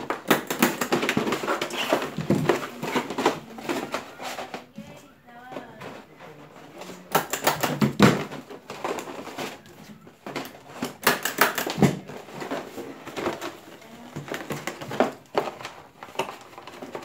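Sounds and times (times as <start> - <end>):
cardboard rubbing and crinkling: 0.9 - 7.1, 11.9 - 17.0
stapler clacks: 7.1 - 8.2, 10.8 - 12.0.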